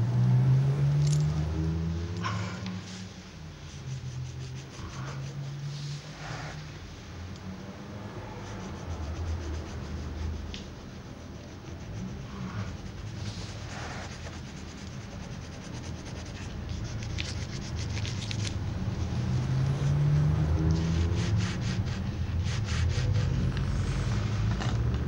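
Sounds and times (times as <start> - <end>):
pen scratching on paper: 8.2 - 24.9.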